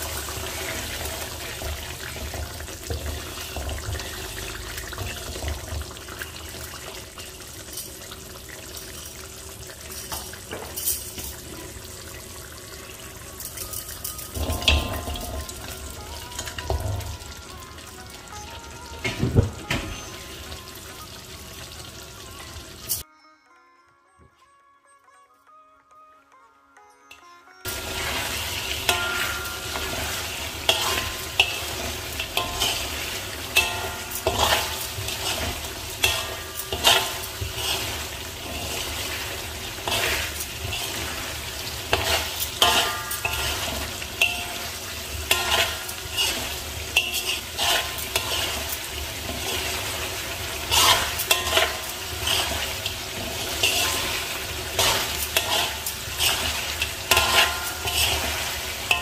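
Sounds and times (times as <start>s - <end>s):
metal spatula scraping a wok: 0.0s - 8.0s, 12.9s - 17.3s, 27.7s - 59.0s
frying sizzle: 0.0s - 23.0s, 27.6s - 59.0s.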